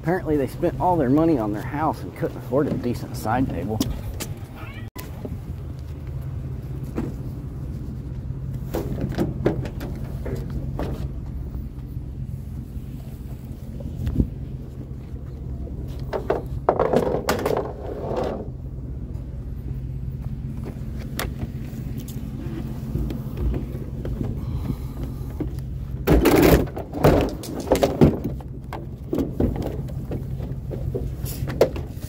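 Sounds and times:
vehicle engine running: 0:00.0 - 0:16.8, 0:18.3 - 0:27.0
clattering and rattling: 0:16.0 - 0:18.5, 0:25.4 - 0:32.0.

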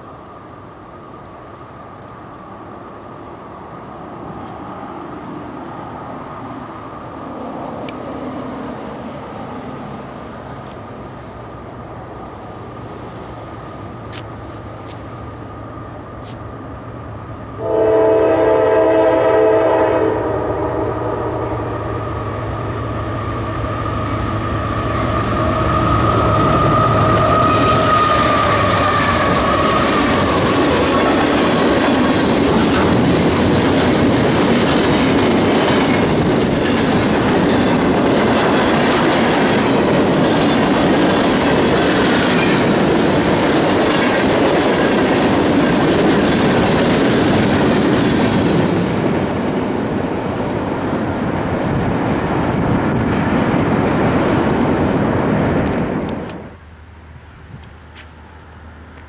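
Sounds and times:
locomotive engine rumble: 0:00.0 - 0:59.0
train air horn blast: 0:17.6 - 0:22.1
train wheels clickety-clack: 0:25.1 - 0:49.8.

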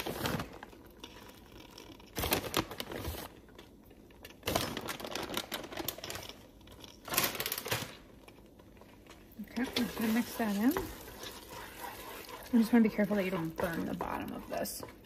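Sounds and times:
plastic bag crinkling: 0:04.3 - 0:08.5.

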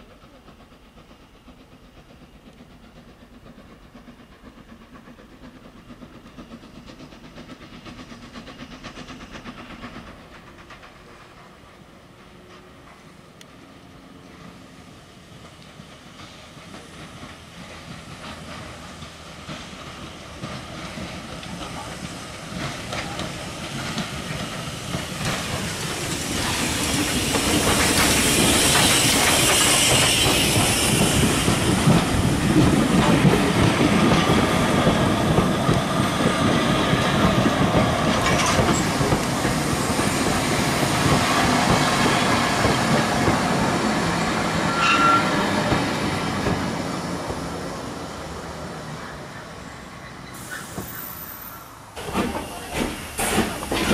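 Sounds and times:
steam locomotive passing: 0:00.0 - 0:53.9
wheels clattering over rail joints: 0:15.4 - 0:47.4, 0:50.2 - 0:53.9.

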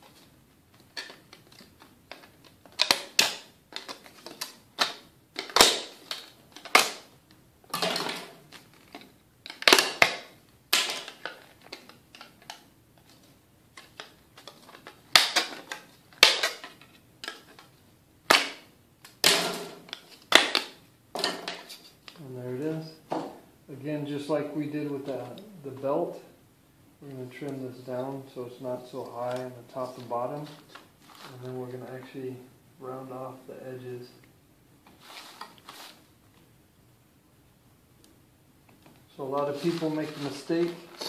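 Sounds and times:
plastic pieces snapping: 0:00.7 - 0:07.1, 0:07.7 - 0:17.7, 0:18.3 - 0:22.2.

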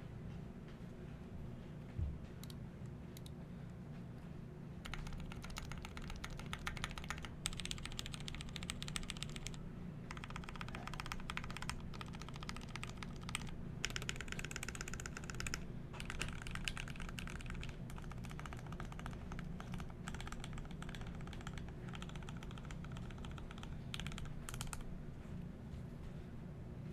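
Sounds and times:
mechanical keyboard keys clacking: 0:04.8 - 0:24.8.

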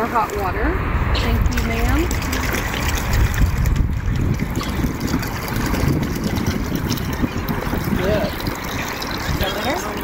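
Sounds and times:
low rumble: 0:00.4 - 0:08.3
water pouring into plastic bucket: 0:01.5 - 0:10.0.

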